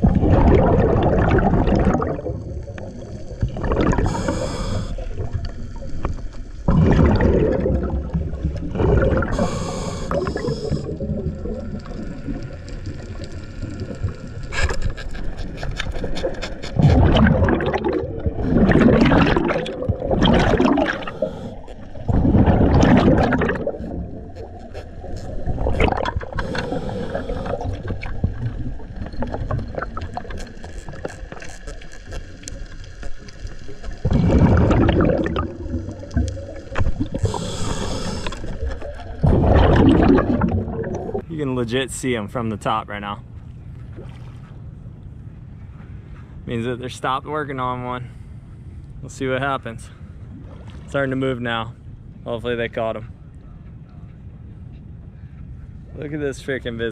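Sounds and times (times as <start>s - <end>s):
scuba bubbles gurgling: 0.0s - 41.3s.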